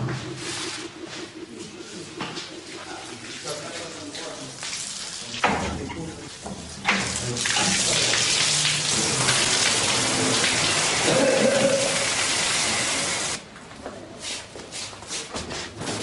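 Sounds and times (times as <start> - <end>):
heavy pouring water: 6.6 - 13.4.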